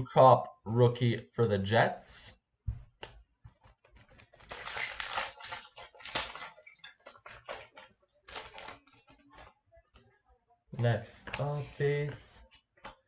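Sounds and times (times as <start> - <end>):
cards rustling: 3.0 - 10.2, 11.1 - 13.0
wrapper crinkling and tearing: 3.5 - 9.6.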